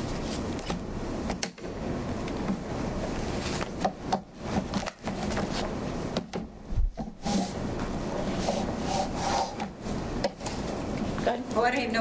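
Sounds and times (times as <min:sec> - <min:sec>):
rubbing and rustling: 0:04.5 - 0:05.8.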